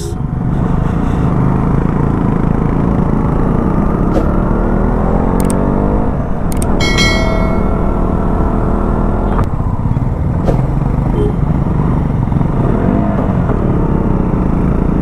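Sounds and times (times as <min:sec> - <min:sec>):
motorcycle engine accelerating: 0:00.2 - 0:15.0.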